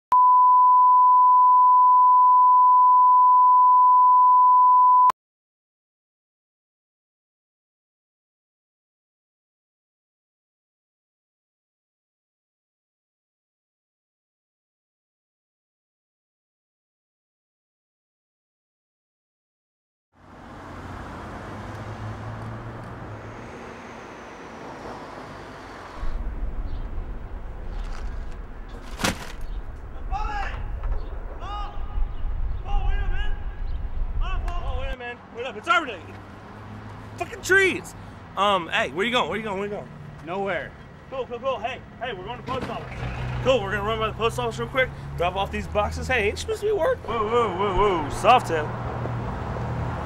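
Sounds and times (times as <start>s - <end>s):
passing vehicle whine: 20.2s - 28.7s, 35.9s - 50.0s
deep vehicle rumble: 20.2s - 35.0s, 36.2s - 50.0s
road traffic noise: 20.2s - 50.0s.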